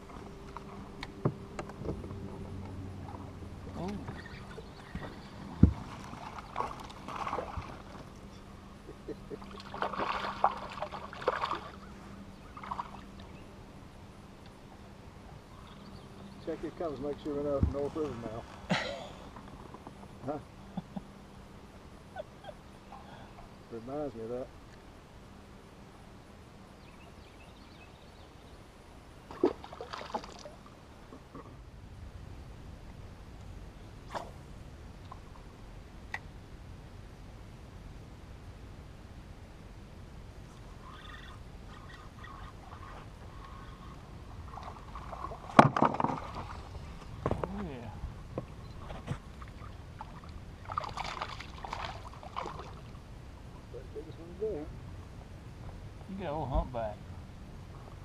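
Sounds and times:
water lapping against boat hull: 0.0s - 13.4s, 29.3s - 31.6s, 40.6s - 53.1s
faint steady hum: 0.0s - 58.0s
fish splashing: 5.7s - 8.1s, 9.4s - 11.9s, 29.3s - 30.6s, 49.4s - 53.0s.

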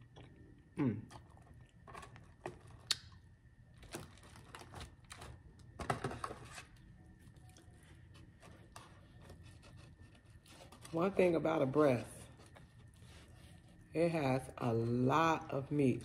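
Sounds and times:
eating clicks and mouth smacks: 2.8s - 3.2s.

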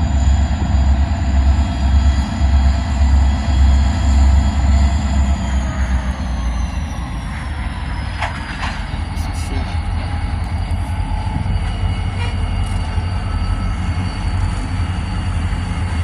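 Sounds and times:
diesel locomotive rumble: 0.0s - 16.0s.

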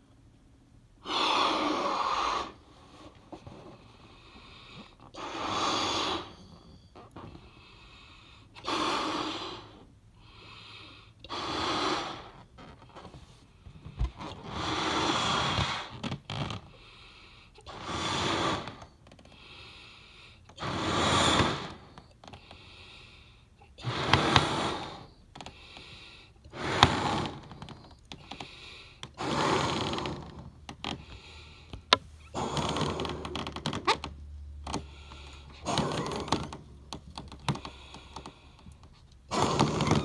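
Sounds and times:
breath blown into balloon: 1.0s - 2.8s, 5.1s - 6.5s, 11.2s - 12.4s, 14.2s - 16.0s, 17.6s - 19.0s, 20.6s - 22.0s, 23.7s - 27.7s, 28.3s - 30.4s, 39.3s - 40.0s.

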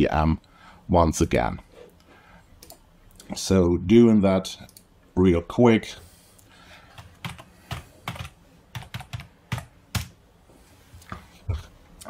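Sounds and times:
computer keyboard keys clicking: 7.0s - 10.1s.

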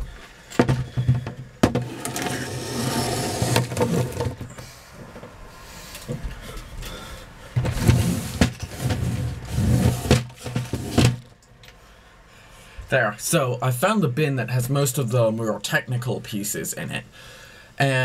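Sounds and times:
plastic bin scraping: 0.6s - 4.6s, 7.6s - 11.3s.

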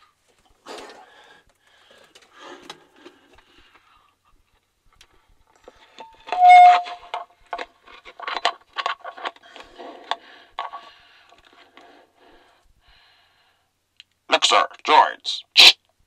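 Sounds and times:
plastic helmet scraping and knocking: 5.6s - 11.7s
loud steady tone: 6.3s - 7.0s.

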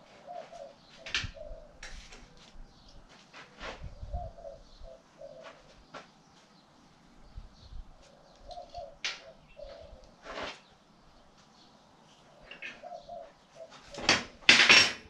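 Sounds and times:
dove cooing: 0.0s - 2.9s, 3.5s - 5.9s, 7.9s - 10.2s, 12.2s - 14.4s.

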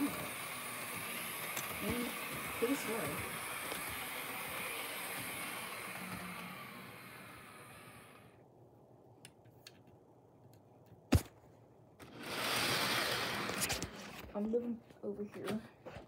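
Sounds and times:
model train running on track: 0.0s - 8.3s.

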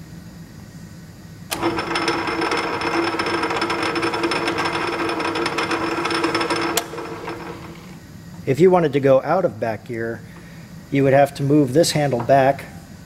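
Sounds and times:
lathe gears humming and rattling: 1.5s - 8.0s.

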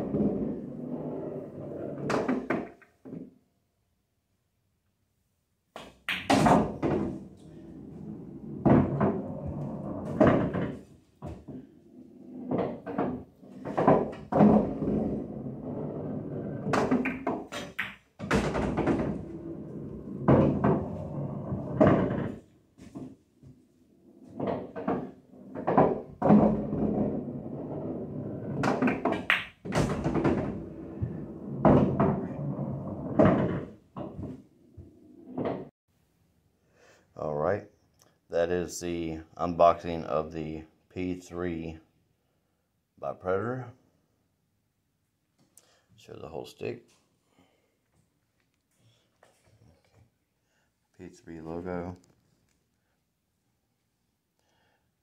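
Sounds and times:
pool balls clacking: 0.0s - 3.3s, 5.7s - 23.2s, 24.1s - 35.7s
balls rolling into pockets: 0.0s - 3.4s, 5.7s - 35.7s.

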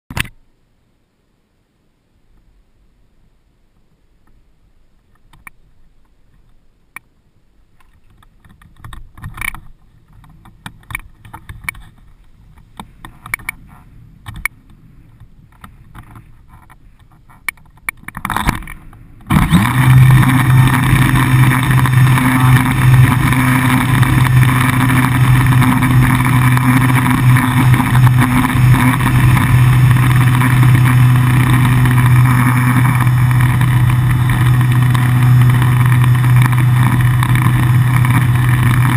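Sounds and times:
electric motor and propeller: 18.0s - 38.9s.

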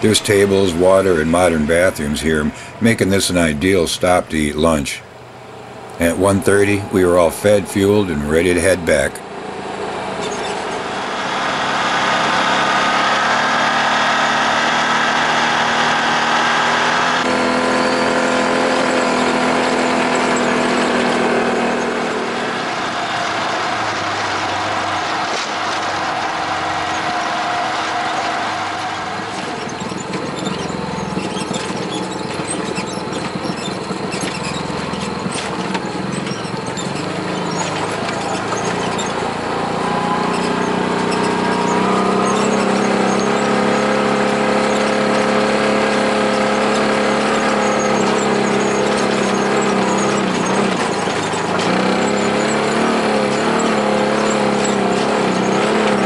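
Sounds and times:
off-road vehicle engine running: 0.0s - 56.0s
tyre and trail noise: 0.0s - 56.0s.

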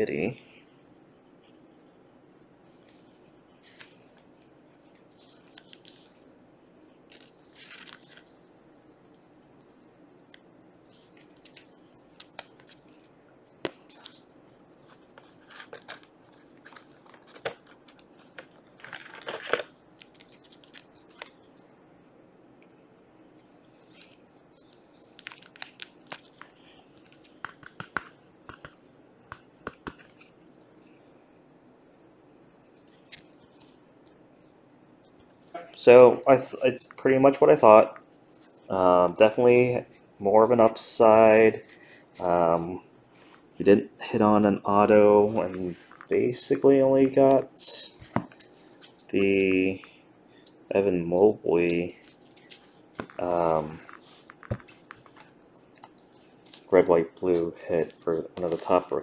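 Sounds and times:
plastic rustling: 7.1s - 8.3s, 14.9s - 21.6s, 51.7s - 59.0s.

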